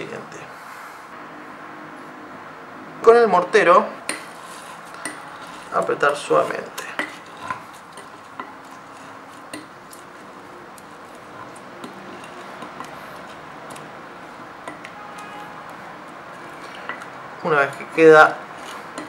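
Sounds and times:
muddler grinding lime: 4.1 - 19.0.

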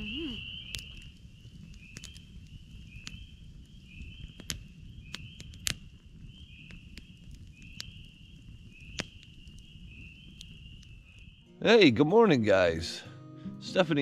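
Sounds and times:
campfire crackling and popping: 0.0 - 13.0.

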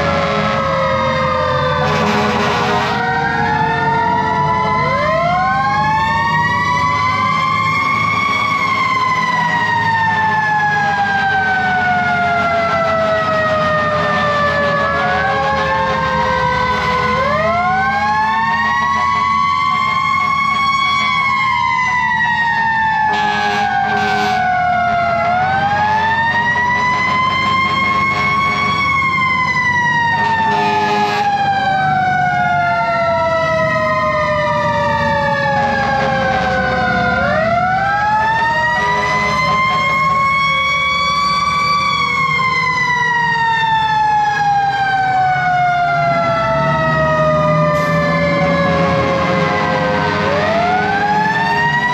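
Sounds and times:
horn blasts: 0.0 - 0.8, 1.8 - 3.1, 12.2 - 17.3, 23.1 - 24.5, 26.4 - 28.8, 30.2 - 31.4, 35.8 - 36.7, 38.8 - 40.0, 48.7 - 50.6
diesel engine drone: 0.0 - 51.9
fire truck sirens wailing: 0.0 - 51.9.

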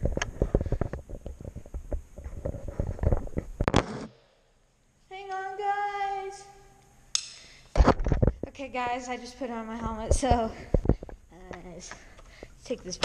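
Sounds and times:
loud scrape: 3.7 - 4.2.

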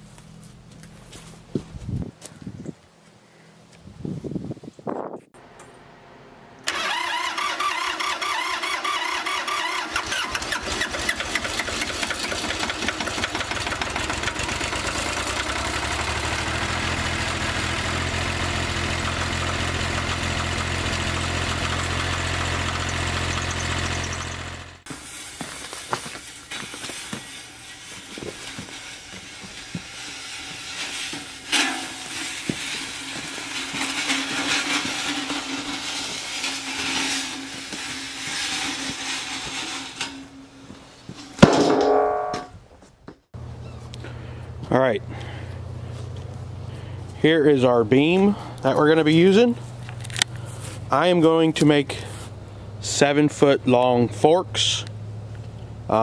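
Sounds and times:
diesel engine idling: 6.6 - 24.9, 43.4 - 56.0
tractor starter cranking: 6.6 - 24.9.

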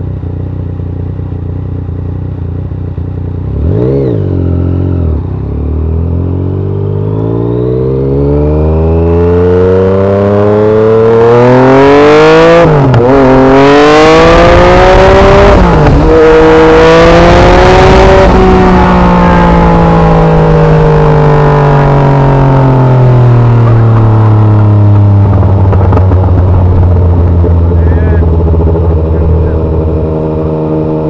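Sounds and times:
motorcycle engine accelerating: 0.0 - 31.0
wind noise: 23.2 - 31.0.

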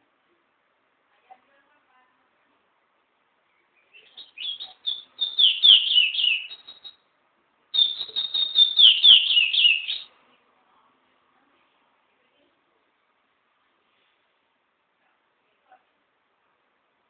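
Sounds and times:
songbird singing high notes: 3.8 - 7.0, 7.8 - 10.1.

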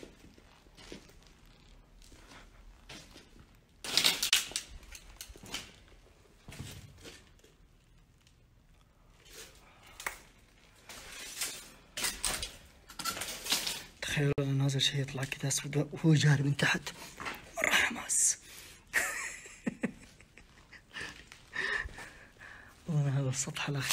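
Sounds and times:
footsteps crunching over rubble: 0.0 - 8.1
debris crackling underfoot: 0.0 - 15.8.

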